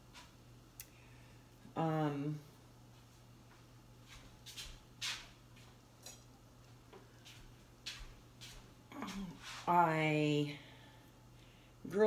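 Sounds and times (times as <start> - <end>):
low steady hum: 0.0 - 12.0
dishes and utensils clinking: 6.0 - 6.3.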